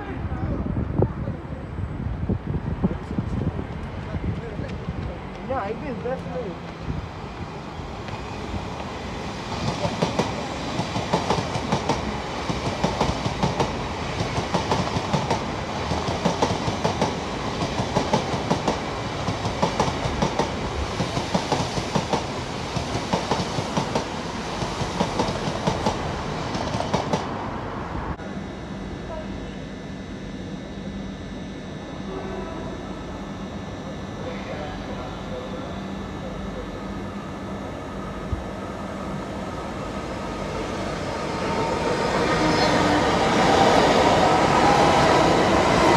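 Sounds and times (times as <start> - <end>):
train wheels clattering over rails: 9.6 - 27.3.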